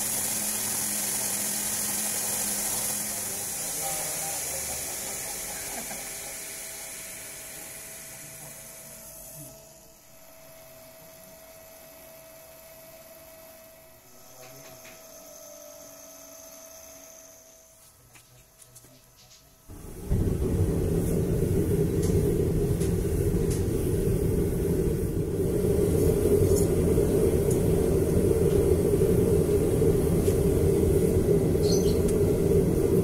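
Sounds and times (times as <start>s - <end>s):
belt grinder running: 0.0s - 9.0s
steady hum with faint whine: 19.7s - 33.0s.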